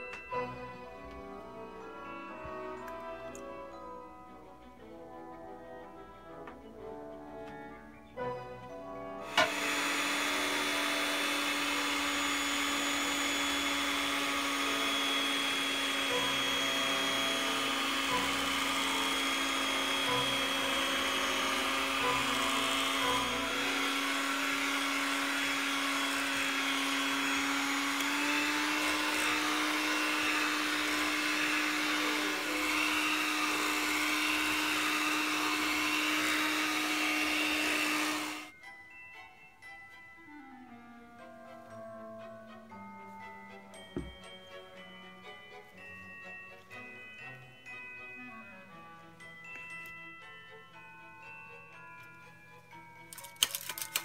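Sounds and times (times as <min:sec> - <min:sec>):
electric hand mixer running: 0:00.0 - 0:04.0, 0:09.2 - 0:39.8, 0:40.6 - 0:54.0.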